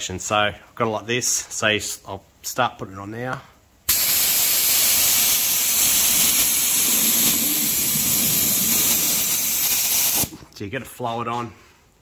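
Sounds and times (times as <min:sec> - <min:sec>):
spray gun hissing: 0:03.9 - 0:10.4.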